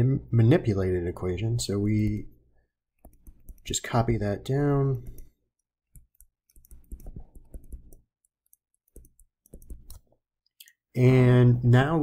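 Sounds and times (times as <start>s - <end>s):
stylus tapping on tablet: 3.0s - 3.7s, 5.9s - 10.2s.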